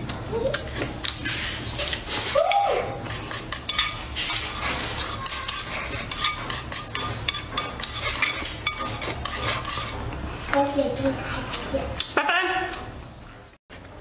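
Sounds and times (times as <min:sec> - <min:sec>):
chopsticks scraping ceramic bowl: 0:03.0 - 0:10.9.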